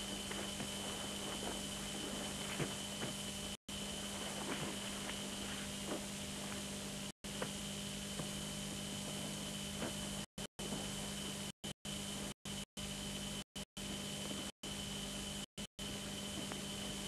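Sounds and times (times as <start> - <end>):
low hum: 0.0 - 12.3
thin high whine: 0.0 - 17.0.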